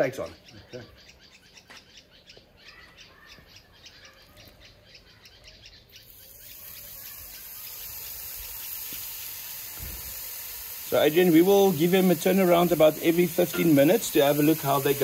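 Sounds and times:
birds chirping: 0.0s - 15.0s
steaks sizzling on a grill: 6.1s - 15.0s.

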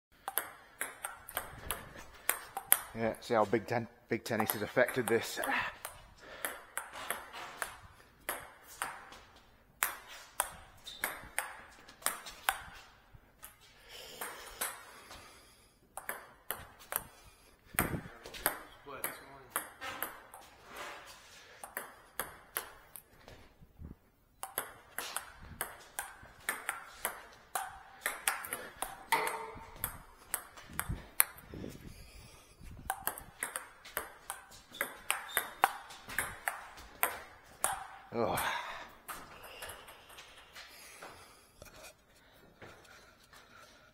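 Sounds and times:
table tennis ball ticking: 0.2s - 3.0s, 15.9s - 20.5s, 24.3s - 31.6s, 32.8s - 38.0s.

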